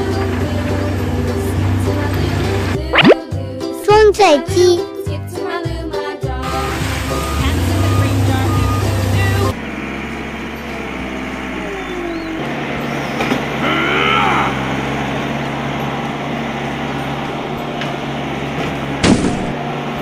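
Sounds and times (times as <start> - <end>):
heavy machine engine drone: 6.4 - 20.0.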